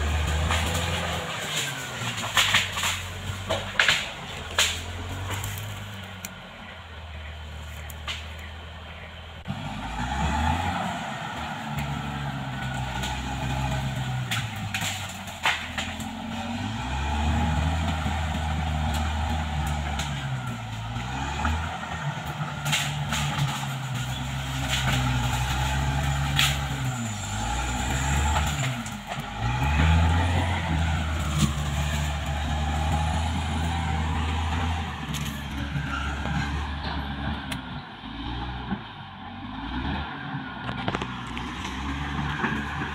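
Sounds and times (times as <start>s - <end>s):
bulldozer diesel engine under load: 0.0s - 42.9s
sharp knocks and cracks: 0.2s - 6.3s, 7.8s - 8.5s, 12.7s - 16.4s, 22.2s - 27.0s.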